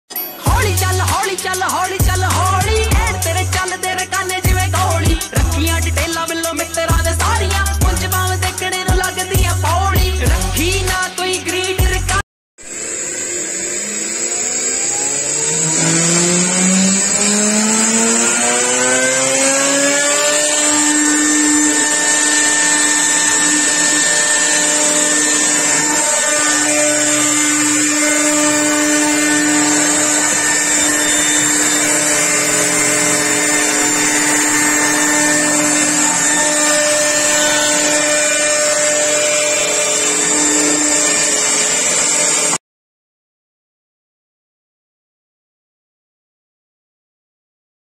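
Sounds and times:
router spindle whine: 0:12.6 - 0:42.6.

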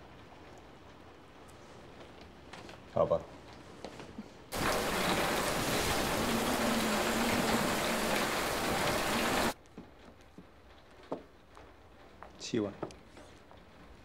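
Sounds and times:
heavy rain: 0:04.5 - 0:09.6.

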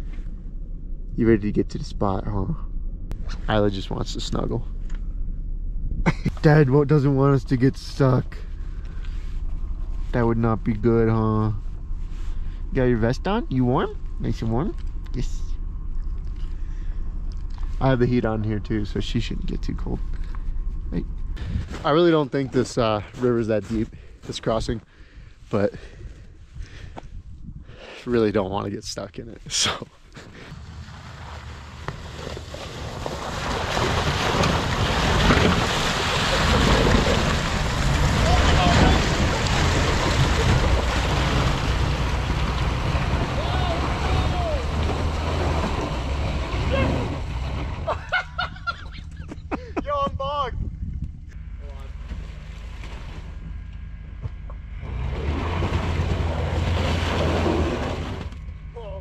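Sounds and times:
low engine rumble: 0:00.0 - 0:59.0
tyres splashing through water: 0:30.7 - 0:48.2, 0:54.9 - 0:58.2.

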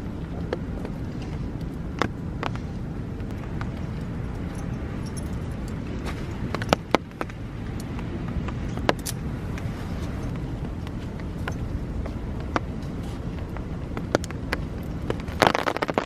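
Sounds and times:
steady low rumble: 0:00.0 - 0:16.0
metal carabiner clicking: 0:08.7 - 0:09.2.

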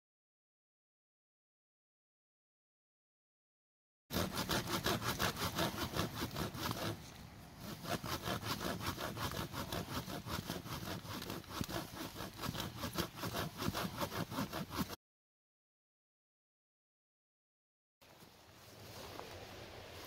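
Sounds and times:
machete sawing through log: 0:04.1 - 0:15.0.

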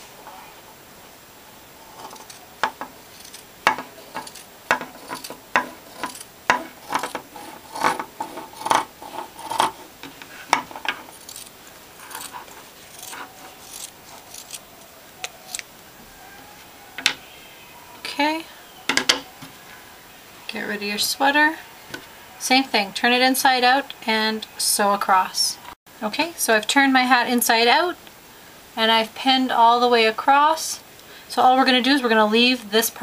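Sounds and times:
scissors snipping fabric: 0:11.2 - 0:14.6.

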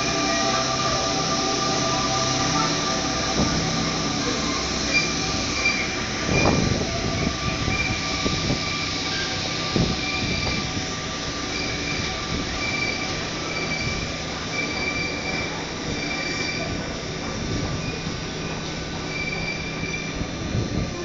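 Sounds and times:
thin high tones: 0:00.0 - 0:16.7
train rolling rumble: 0:00.0 - 0:21.0.

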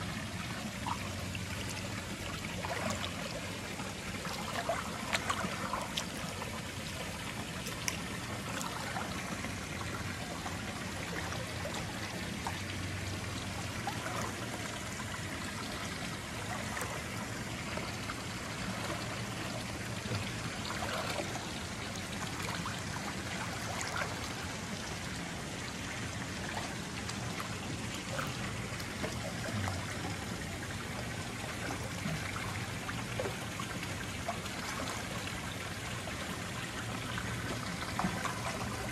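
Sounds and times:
small splashes: 0:00.0 - 0:12.8, 0:13.5 - 0:24.7
water trickling into pool: 0:00.0 - 0:38.9.

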